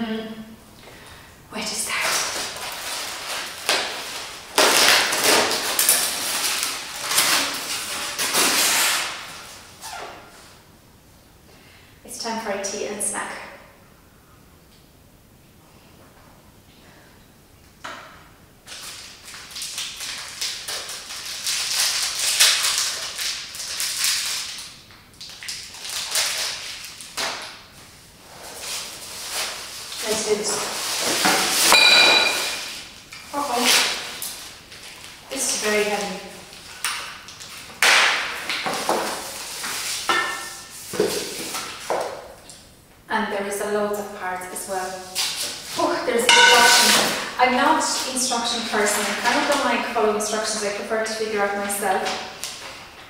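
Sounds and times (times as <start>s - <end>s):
plastic wrapper crinkling: 1.9s - 9.6s, 18.7s - 27.7s, 32.4s - 40.0s.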